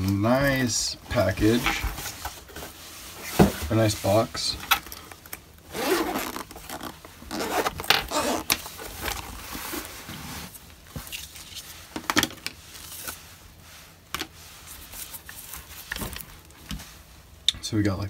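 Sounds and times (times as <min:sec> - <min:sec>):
zipper being pulled open: 0:05.7 - 0:09.9.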